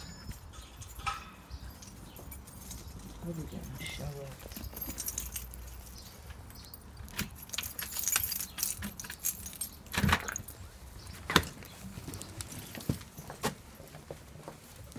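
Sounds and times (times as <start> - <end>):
jangling clattering handling: 0.0 - 10.6.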